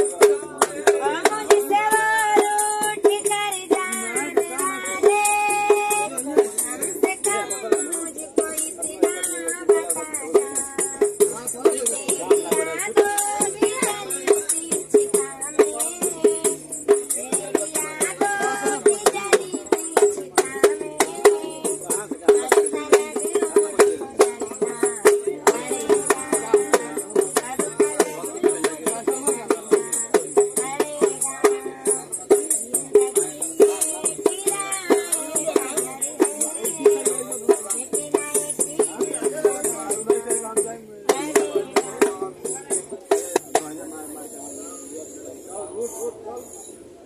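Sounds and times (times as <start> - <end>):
woman singing: 0.0 - 43.2
dholak drum beating: 0.0 - 47.0.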